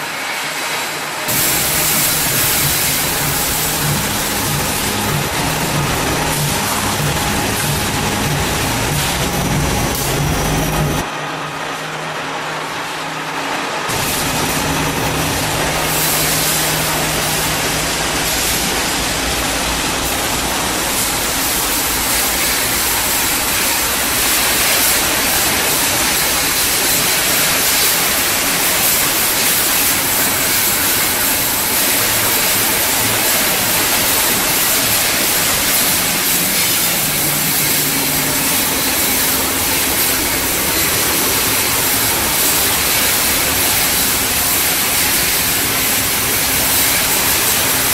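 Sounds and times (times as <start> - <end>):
extrusion line hissing: 0.0 - 11.1, 13.9 - 47.9.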